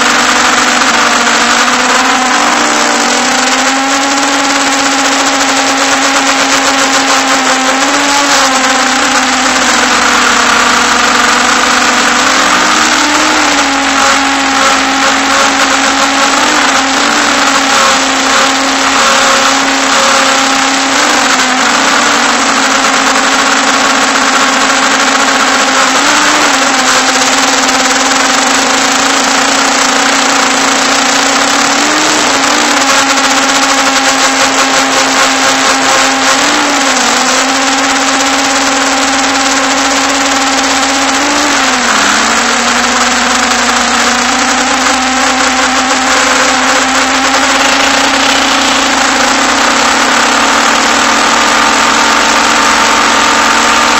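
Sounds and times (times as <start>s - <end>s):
drone motors whining: 0.0s - 53.9s
rushing prop wash: 0.0s - 53.9s.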